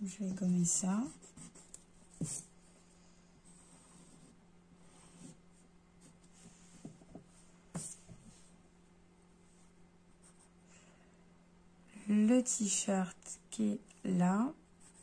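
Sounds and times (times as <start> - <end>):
pencil scratching on paper: 0.9 - 2.5, 3.4 - 5.4, 7.7 - 8.3, 14.8 - 15.0.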